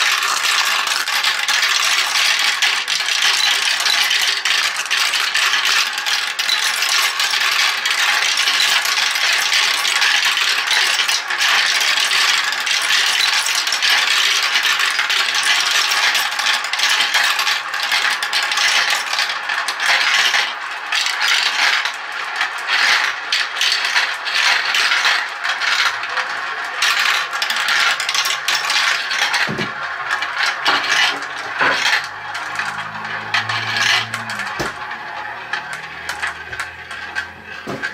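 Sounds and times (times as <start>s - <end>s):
marbles clattering through plastic tracks: 0.0s - 37.9s.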